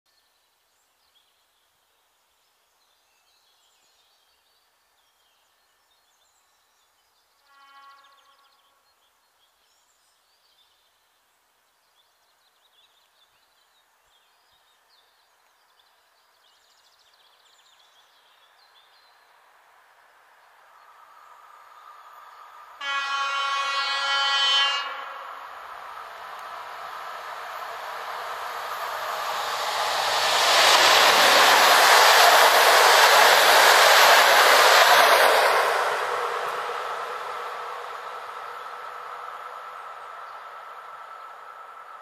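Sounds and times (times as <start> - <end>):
faint birdsong: 0.1 - 42.0
approaching train rumble: 20.9 - 42.0.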